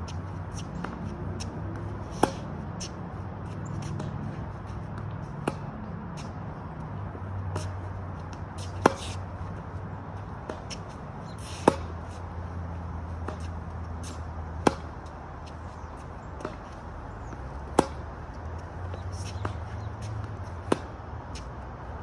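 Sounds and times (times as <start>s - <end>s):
tennis racket hitting ball: 0.1s - 21.6s
faint distant racket hits: 0.6s - 3.0s, 7.3s - 9.3s, 10.4s - 12.2s, 13.0s - 15.6s, 16.4s - 21.5s.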